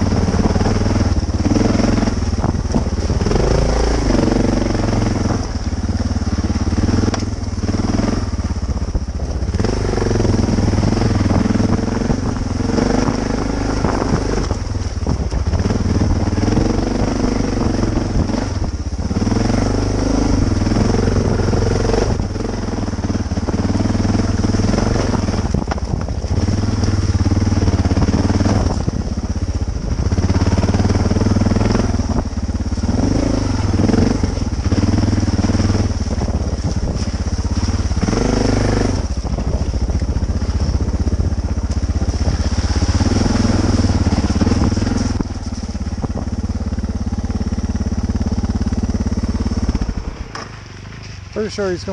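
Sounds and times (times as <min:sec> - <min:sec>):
motorcycle engine revving: 0:00.0 - 0:51.9.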